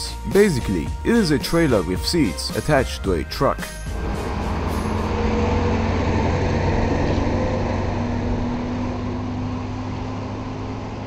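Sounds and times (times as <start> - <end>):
truck engine driving past: 3.7 - 11.0.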